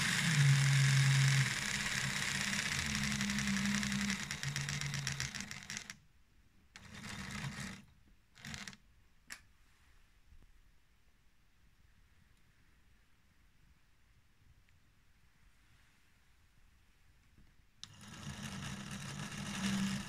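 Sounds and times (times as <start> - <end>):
toy train motor whirring: 0.0 - 6.0, 6.8 - 8.8, 17.8 - 20.0.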